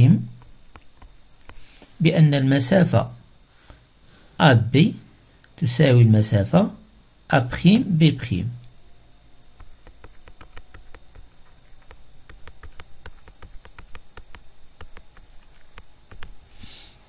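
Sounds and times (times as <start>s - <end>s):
stylus tapping on writing tablet: 9.6s - 16.4s.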